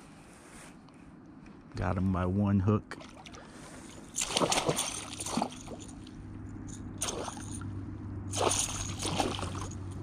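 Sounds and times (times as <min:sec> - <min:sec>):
low steady hum: 0:00.0 - 0:10.0
fish splashing in water: 0:03.0 - 0:06.0, 0:07.0 - 0:07.6, 0:08.3 - 0:09.9.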